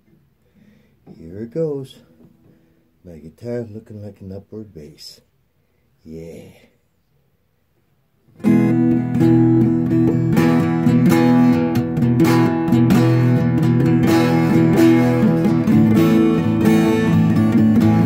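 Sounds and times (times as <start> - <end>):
acoustic guitar strumming: 8.3 - 18.0.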